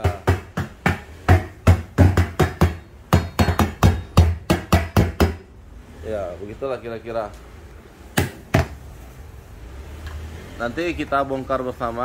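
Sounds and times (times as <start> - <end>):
hand slapping speaker cabinet: 0.0 - 5.5, 8.2 - 8.8.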